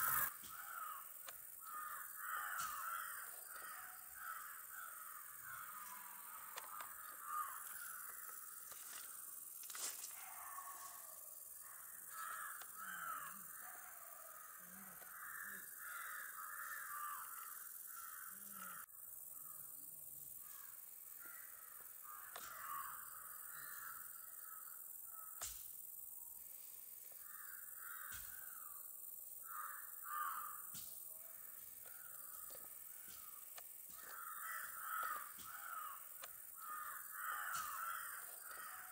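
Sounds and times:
steady high hiss: 0:00.0 - 0:02.9
crows cawing: 0:00.0 - 0:09.2, 0:10.2 - 0:19.6, 0:20.5 - 0:25.4, 0:27.2 - 0:28.8, 0:29.4 - 0:30.8, 0:31.8 - 0:38.9.

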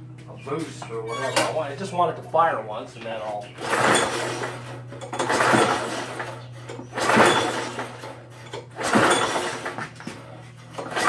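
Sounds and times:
recoil starter pull: 0:03.6 - 0:10.1, 0:10.8 - 0:11.0.

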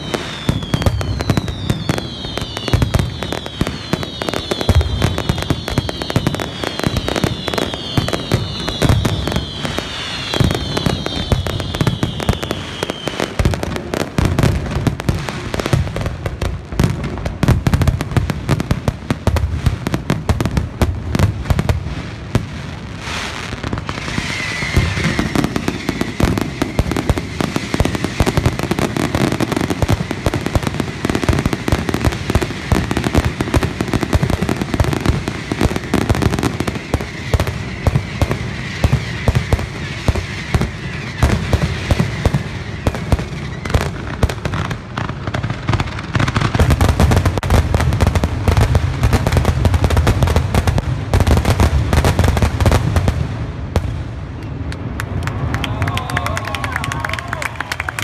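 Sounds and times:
falling firework whistles: 0:00.0 - 0:14.6, 0:23.0 - 0:47.4
firework bangs and crackles: 0:00.0 - 0:58.0.

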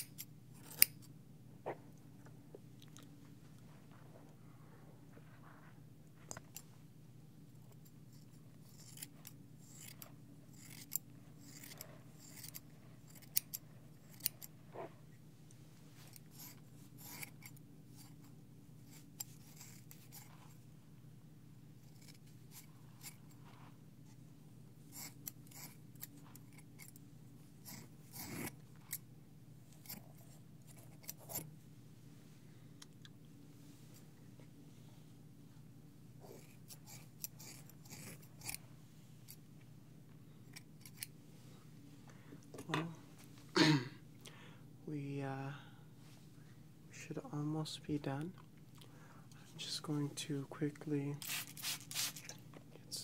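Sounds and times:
scissors snipping hair: 0:00.0 - 0:01.0, 0:08.7 - 0:14.5, 0:16.1 - 0:18.1, 0:51.2 - 0:52.4
faint low hum: 0:00.0 - 0:53.0.

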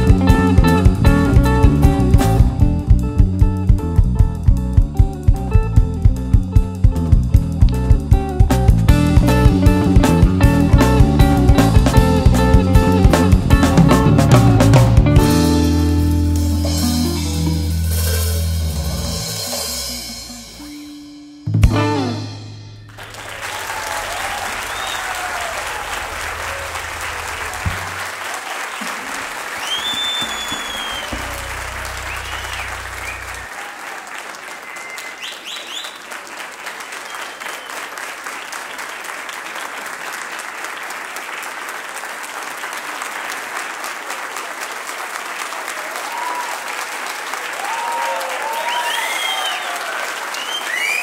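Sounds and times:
audience applauding and cheering: 0:22.9 - 0:51.0
whistles and shouts: 0:24.4 - 0:25.8, 0:29.6 - 0:33.8, 0:34.4 - 0:36.1, 0:37.1 - 0:37.9, 0:47.8 - 0:51.0
low hum: 0:30.6 - 0:33.4.

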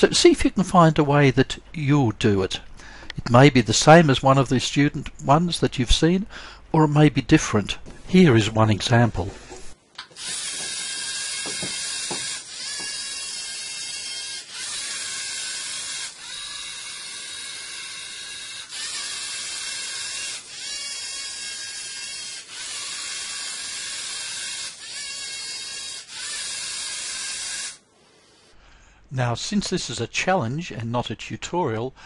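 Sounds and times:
robot motors whirring: 0:09.6 - 0:27.8.

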